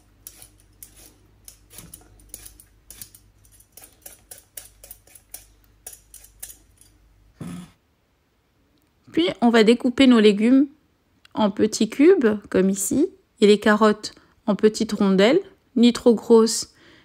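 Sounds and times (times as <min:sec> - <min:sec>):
peeler scraping turnip skin: 0:00.0 - 0:06.9.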